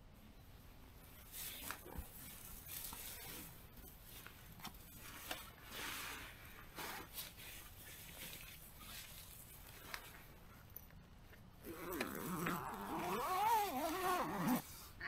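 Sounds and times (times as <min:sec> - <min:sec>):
rustling of tent fabric: 0:11.6 - 0:15.0.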